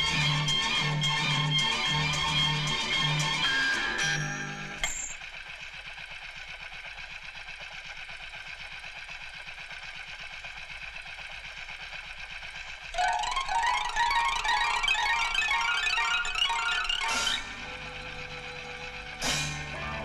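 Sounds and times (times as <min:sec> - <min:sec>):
string and guitar music: 0:00.0 - 0:04.8, 0:13.0 - 0:20.0
coin ringing: 0:03.1 - 0:05.2
motorcycle engine idling: 0:04.8 - 0:20.0.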